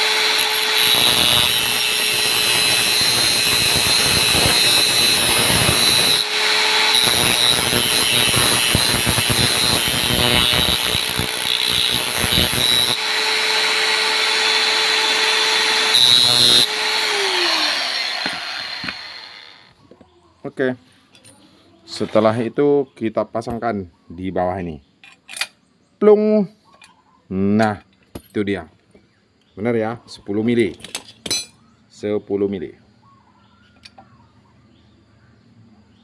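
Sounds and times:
angle grinder grinding steel bolt: 0.0s - 19.7s.

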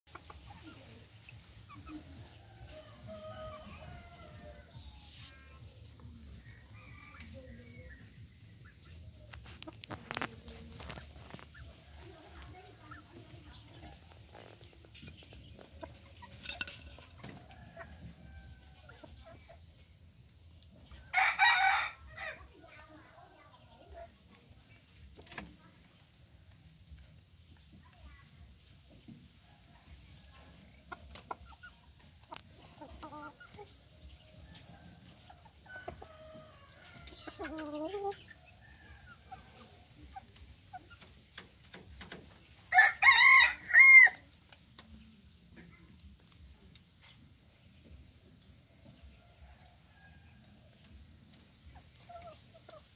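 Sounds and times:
hens clucking softly: 0.1s - 4.6s, 28.9s - 42.5s, 48.3s - 52.9s
chickens clucking: 0.1s - 52.9s
cockerel crowing: 42.7s - 44.2s
loud chicken call: 42.7s - 44.2s.

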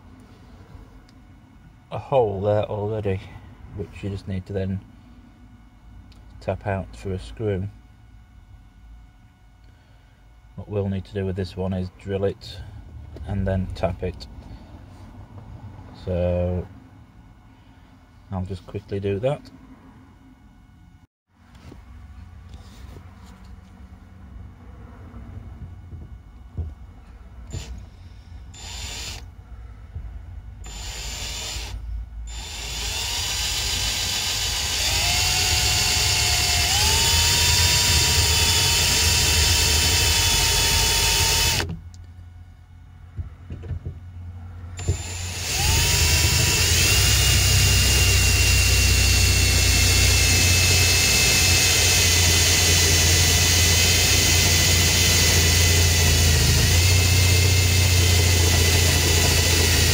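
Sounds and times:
cordless drill drilling into metal: 27.5s - 27.7s, 28.6s - 29.2s, 30.6s - 41.7s, 44.8s - 59.9s.

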